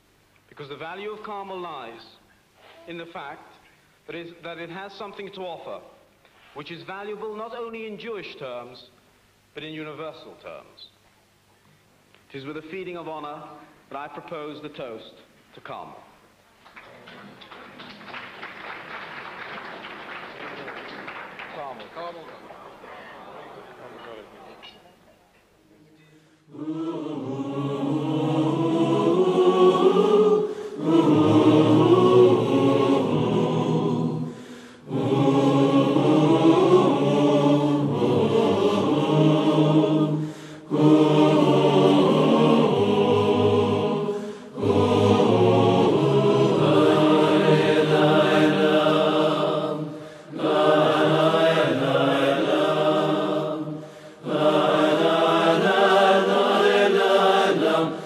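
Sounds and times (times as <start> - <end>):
choir singing chant-like piece: 26.1 - 58.0.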